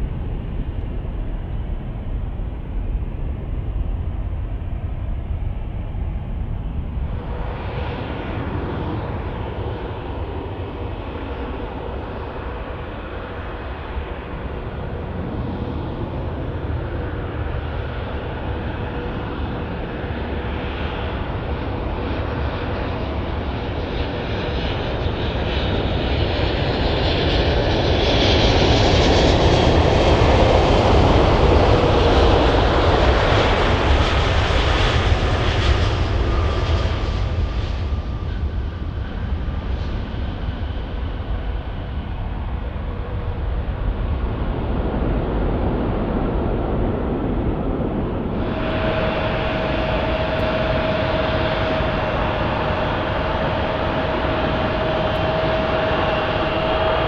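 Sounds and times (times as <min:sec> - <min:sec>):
airliner engines roaring: 0:00.0 - 0:57.0.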